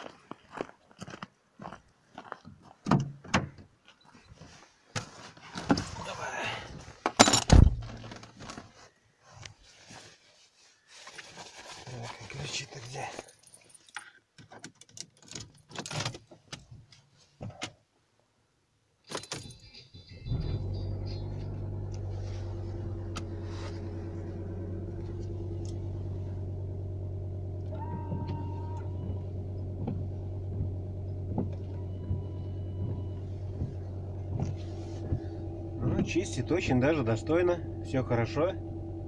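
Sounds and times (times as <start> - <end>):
car engine idling: 20.0 - 39.0
ignition clicks: 20.3 - 26.7, 27.5 - 38.4
windshield wipers sweeping: 20.7 - 37.2.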